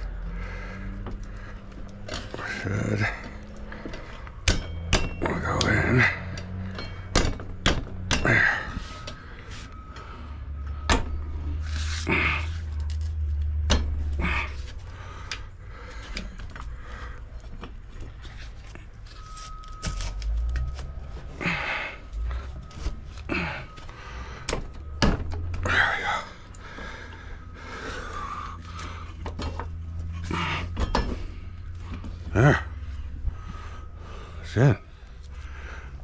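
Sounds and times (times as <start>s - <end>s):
metal clicks and clinks: 3.2s - 9.2s.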